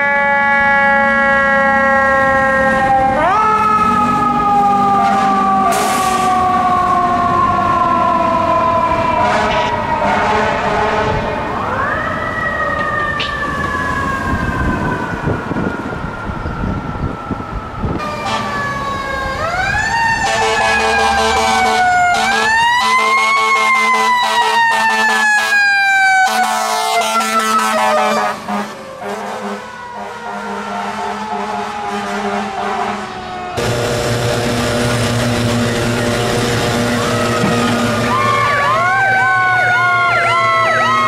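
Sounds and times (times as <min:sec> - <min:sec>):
rapid pulsing siren: 0:00.0 - 0:41.0
horn tones: 0:20.2 - 0:25.5, 0:26.3 - 0:38.8.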